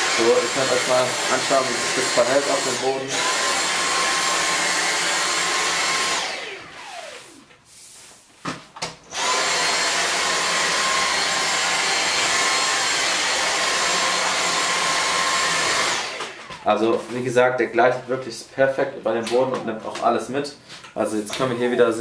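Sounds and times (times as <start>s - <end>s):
vacuum cleaner whining: 0.0s - 7.6s, 9.1s - 17.4s.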